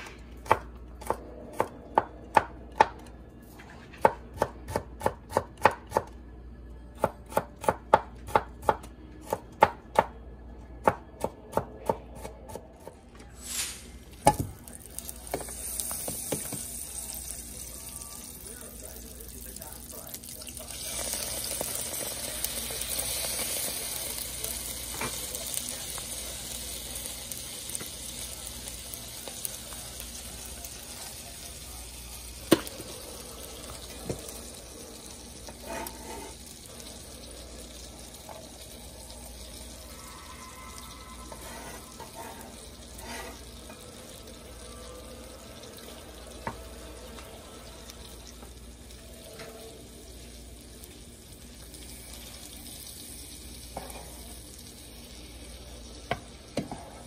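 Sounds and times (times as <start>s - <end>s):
butter sizzling in a frying pan: 13.4s - 57.0s.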